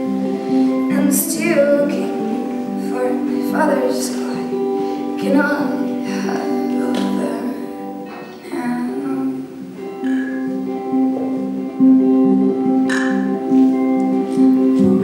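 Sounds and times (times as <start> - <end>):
hollow-body electric guitar: 0.0 - 15.0
woman singing: 0.8 - 9.6, 14.5 - 15.0.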